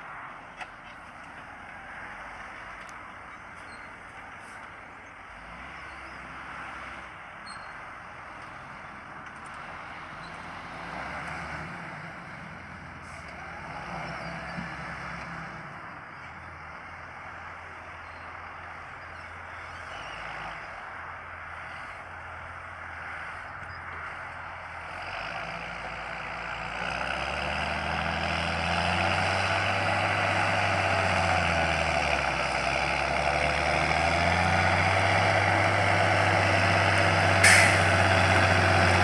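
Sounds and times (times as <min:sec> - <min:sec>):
tractor engine droning: 0:23.5 - 0:39.0.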